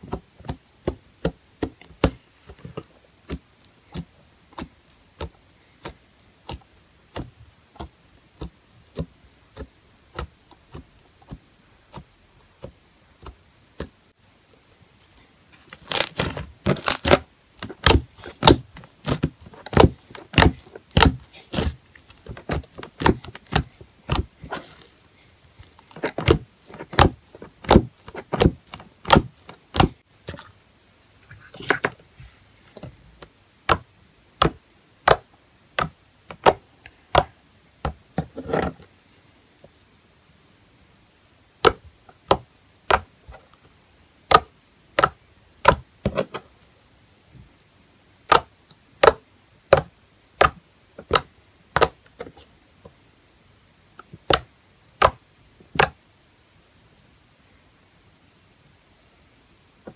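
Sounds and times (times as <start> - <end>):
fingers poking slime: 0.0 - 14.0, 15.0 - 30.4, 33.6 - 38.8, 41.6 - 43.4, 44.2 - 46.2, 48.2 - 52.4, 54.0 - 56.0.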